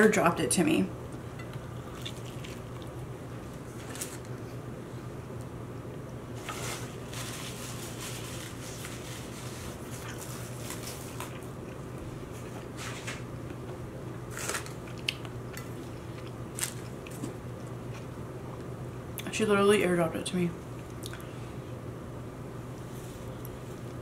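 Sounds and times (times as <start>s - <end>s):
steady low hum: 0.0s - 24.0s
chewing and mouth sounds: 1.6s - 3.0s.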